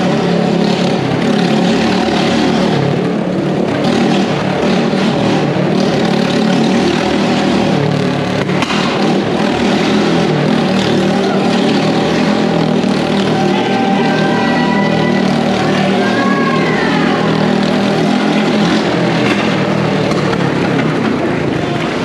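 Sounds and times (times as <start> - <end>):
motorcycle engine at high revs: 0.0 - 22.0.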